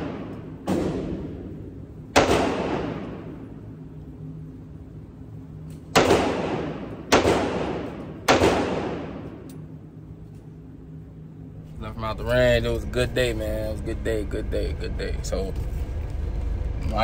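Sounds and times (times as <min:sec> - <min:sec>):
pistol shots echoing indoors: 0:00.0 - 0:03.7, 0:05.6 - 0:09.8.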